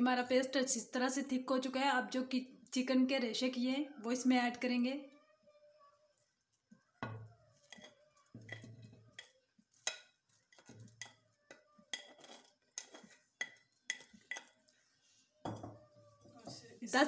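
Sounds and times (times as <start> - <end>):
plastic spatula scraping dishes: 7.6 - 14.7.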